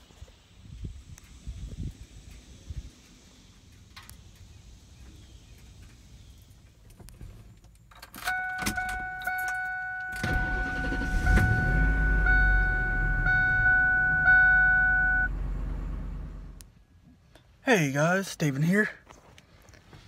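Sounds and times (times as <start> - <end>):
pickup engine starting and rumbling: 0.4 - 16.7
high warning tone: 8.3 - 15.3.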